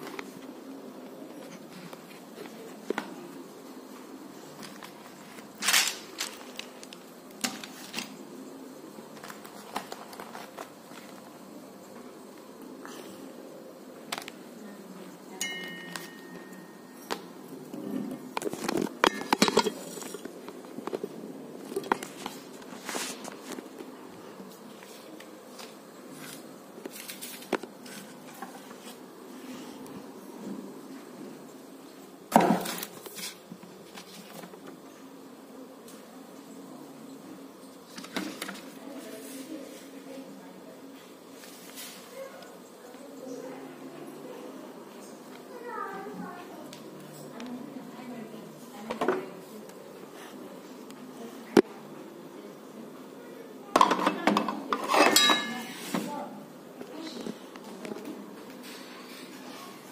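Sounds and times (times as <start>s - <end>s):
paper bag rustling: 4.7s - 8.1s.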